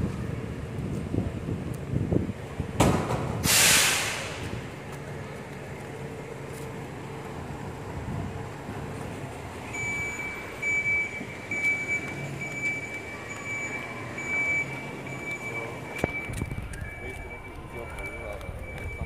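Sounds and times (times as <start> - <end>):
truck engine hum: 0.0 - 19.0
air release hiss: 3.3 - 4.5
reversing alarm beeping: 9.6 - 19.0.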